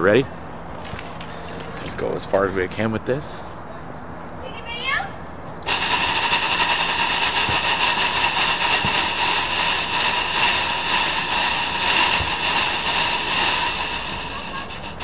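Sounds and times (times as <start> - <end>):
fog machine hissing: 5.7 - 15.0.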